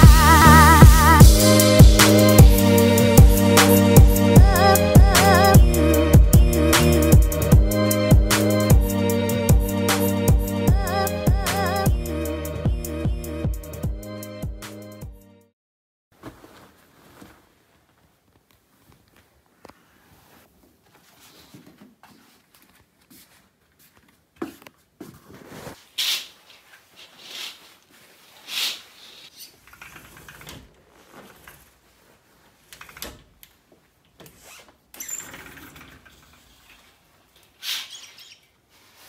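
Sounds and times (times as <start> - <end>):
scuffs and swishes: 16.2 - 29.6, 30.8 - 32.7, 36.8 - 39.0
rustling: 16.2 - 34.9, 35.7 - 39.0
footsteps on wooden floor: 20.6 - 25.8.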